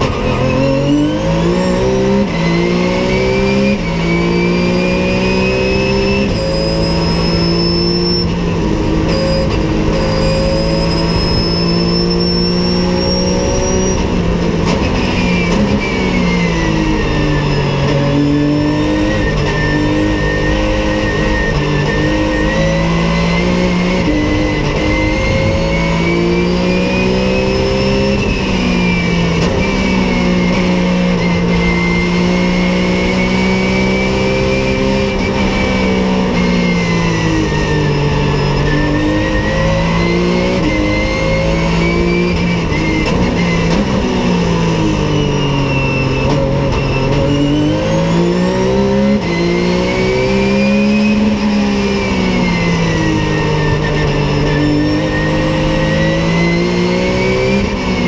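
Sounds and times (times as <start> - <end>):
race car engine revving: 0.0 - 58.0
high whine: 6.2 - 43.3.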